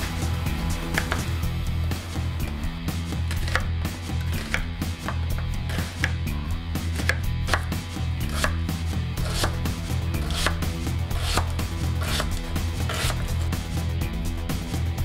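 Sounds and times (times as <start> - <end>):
knife chopping on wooden board: 0.9 - 1.3, 3.3 - 13.5
knife slicing green onion: 0.9 - 1.3, 3.3 - 13.6.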